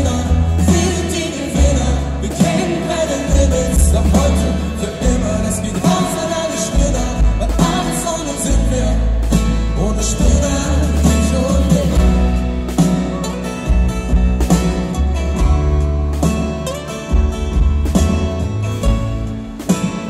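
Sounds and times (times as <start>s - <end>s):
male and female voices singing: 0.0s - 12.5s
double bass: 0.0s - 20.0s
drums: 0.0s - 20.0s
piano: 0.0s - 20.0s.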